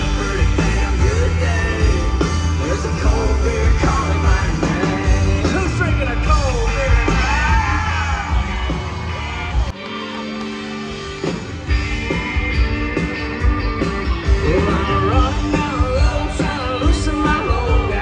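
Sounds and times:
male lead vocal: 0.0s - 9.0s, 14.3s - 18.0s
acoustic guitar: 0.0s - 18.0s
bass guitar: 0.0s - 18.0s
drums: 0.0s - 18.0s.

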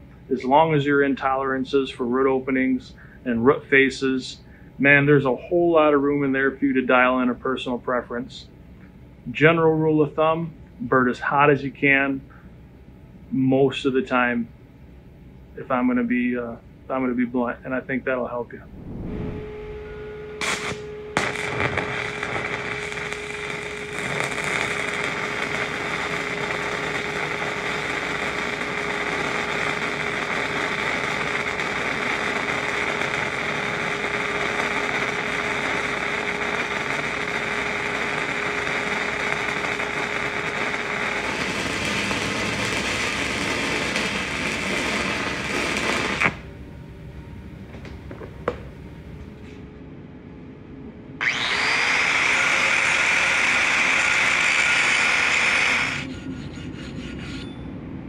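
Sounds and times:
welding arc crackle and hiss: 20.4s - 46.4s, 51.2s - 56.1s.

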